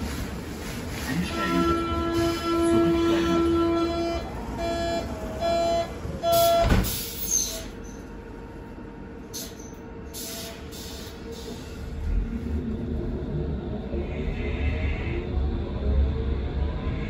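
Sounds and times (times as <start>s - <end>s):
low hum of train car: 0.0s - 17.0s
door-closing warning beeps: 6.3s - 7.6s
sliding doors shutting: 6.3s - 7.7s.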